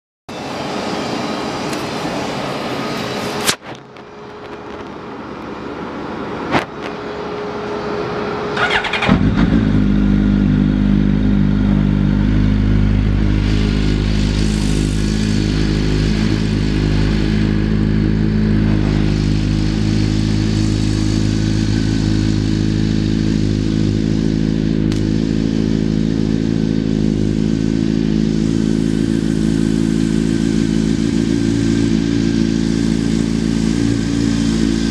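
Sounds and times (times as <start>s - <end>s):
motorcycle engine cranking and idling: 8.5s - 34.9s.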